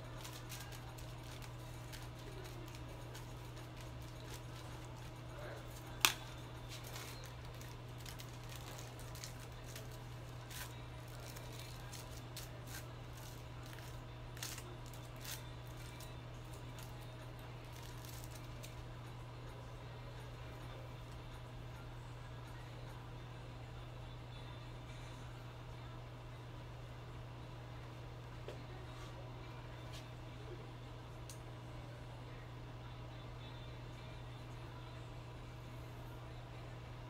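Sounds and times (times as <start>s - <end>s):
aluminium foils crinkling: 0.0s - 19.0s
steady low hum: 0.0s - 37.0s.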